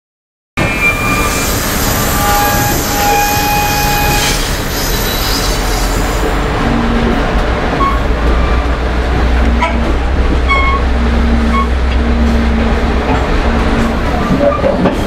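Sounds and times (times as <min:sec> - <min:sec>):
train wheels squealing: 0:00.6 - 0:06.2
wheels rumbling on rail: 0:00.6 - 0:15.0.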